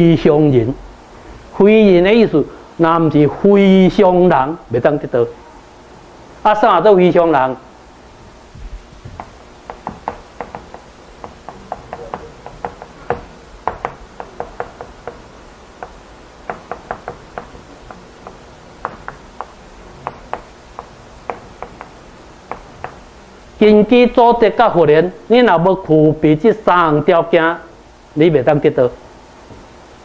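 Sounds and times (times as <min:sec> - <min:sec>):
chalk tapping and scratching on chalkboard: 0:09.2 - 0:23.0.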